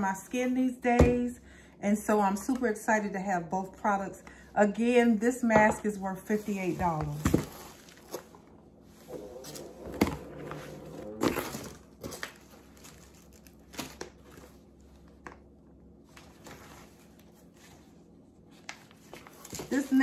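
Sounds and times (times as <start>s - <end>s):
packaging rustling and crinkling: 7.0s - 8.5s, 9.1s - 15.2s.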